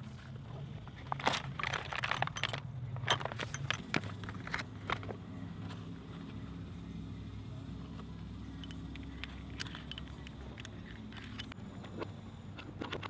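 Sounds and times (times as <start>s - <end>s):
plastic pouch rustling: 1.0s - 4.6s
metal tools clinking: 1.0s - 5.0s, 8.5s - 11.6s.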